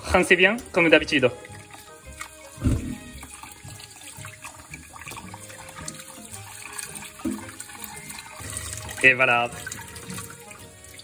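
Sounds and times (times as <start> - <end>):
tap running into bowl of water: 0.0 - 11.0
water splashing on fish: 0.0 - 11.0.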